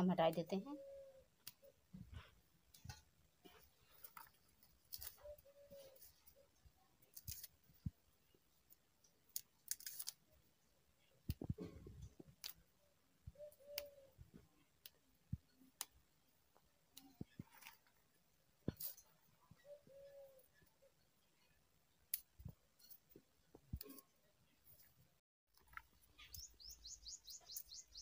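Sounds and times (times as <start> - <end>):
plants rustling and snapping: 3.9 - 6.1, 7.0 - 7.8, 9.3 - 10.2, 12.3 - 12.6.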